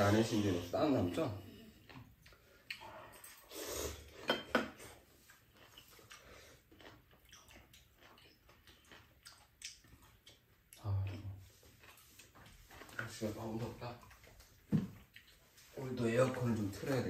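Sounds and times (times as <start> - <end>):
chewing: 0.3 - 17.0
noodle slurping: 1.8 - 4.2.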